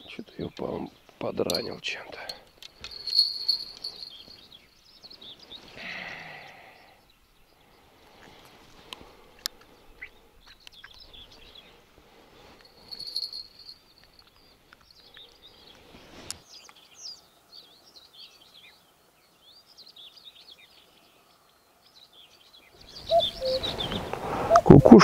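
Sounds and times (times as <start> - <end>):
songbirds chirping and trilling: 0.0 - 25.0
cuckoo call: 23.0 - 25.0.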